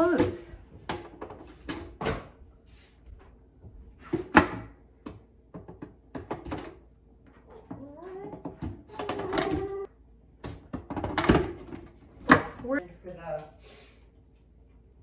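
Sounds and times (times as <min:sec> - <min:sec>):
plastic lid knocking and clacking: 0:10.4 - 0:12.5.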